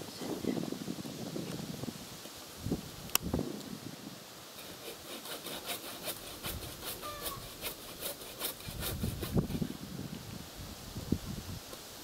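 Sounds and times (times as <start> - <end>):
hand saw cutting branch: 4.5 - 9.7.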